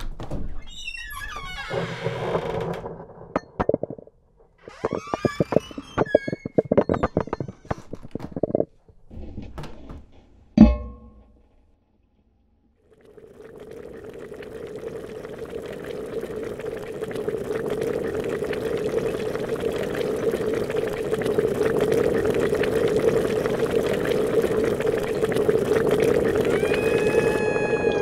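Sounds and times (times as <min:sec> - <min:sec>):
water bubbling and churning: 0:04.8 - 0:07.5, 0:12.9 - 0:28.0.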